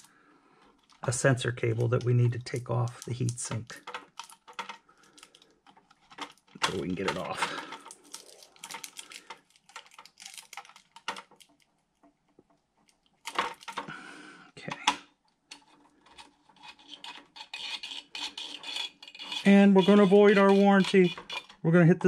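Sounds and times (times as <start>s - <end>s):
metal heatsink clinking and scraping: 16.1s - 21.6s.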